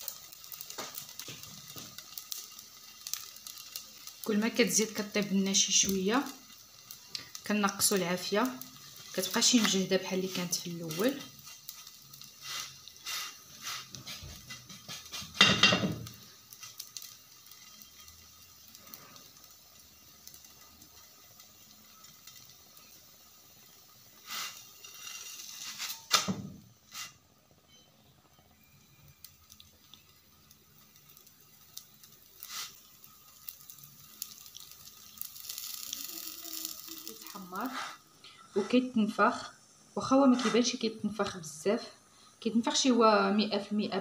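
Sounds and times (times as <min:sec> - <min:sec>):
flatbread sizzling in a pan: 0:00.0 - 0:44.0
knocks and scrapes on a pan: 0:12.5 - 0:16.2.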